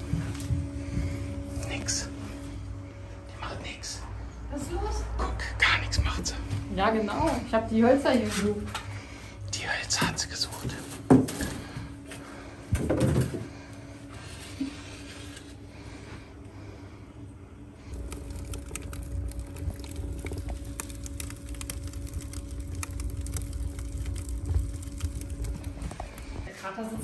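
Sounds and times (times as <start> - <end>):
fire rumbling in stove: 11.3 - 27.0
flames crackling: 17.8 - 27.0.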